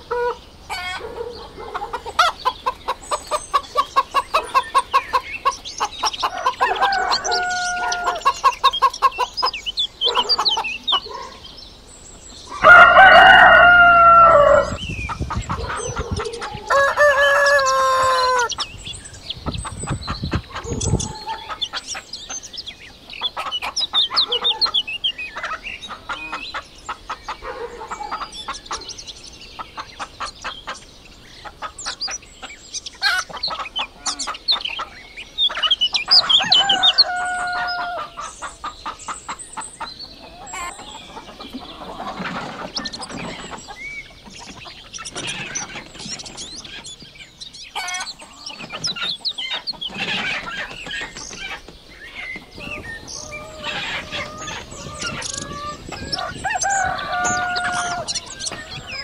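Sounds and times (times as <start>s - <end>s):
chickens clucking: 0.0s - 59.0s
rooster crowing: 6.3s - 8.4s, 12.5s - 14.8s, 15.7s - 18.6s, 36.3s - 38.2s, 53.2s - 59.0s.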